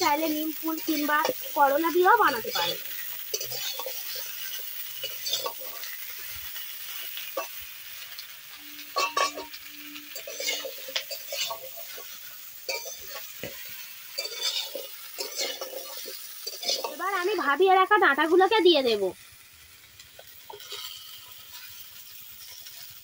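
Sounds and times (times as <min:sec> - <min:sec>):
vegetables sizzling in oil: 0:00.0 - 0:23.0
metal spatula scraping pan: 0:02.2 - 0:07.6, 0:08.7 - 0:17.0.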